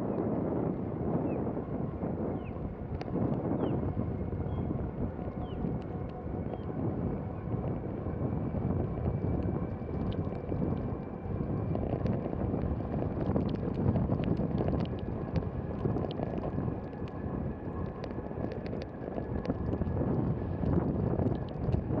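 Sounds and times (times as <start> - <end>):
wind buffeting microphone: 0.0 - 22.0
light ticks: 2.9 - 3.4, 9.4 - 11.1, 11.7 - 17.2, 17.8 - 19.9.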